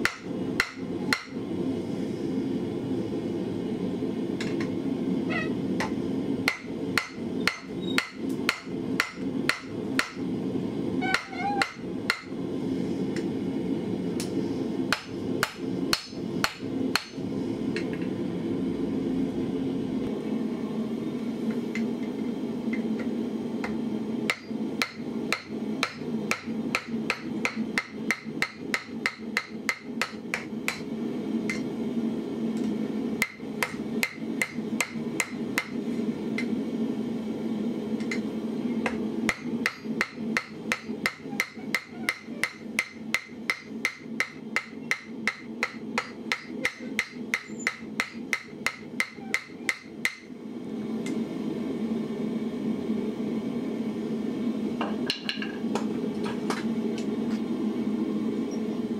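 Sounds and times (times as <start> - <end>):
hammer striking hot steel on anvil: 0.0 - 1.4, 5.8 - 10.2, 11.1 - 12.4, 14.9 - 17.2, 22.7 - 30.9, 33.2 - 35.8, 38.8 - 50.3.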